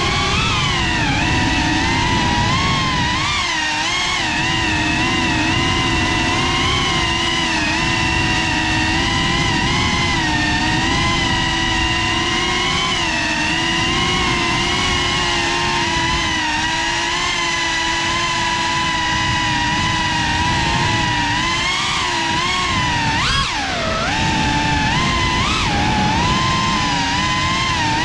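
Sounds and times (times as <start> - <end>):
quadcopter motors whining: 0.0 - 28.0.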